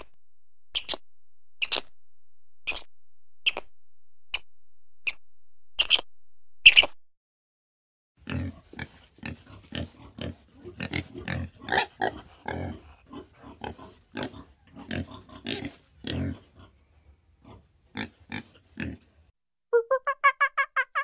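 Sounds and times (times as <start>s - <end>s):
pig grunting: 8.2s - 16.8s, 17.4s - 19.1s.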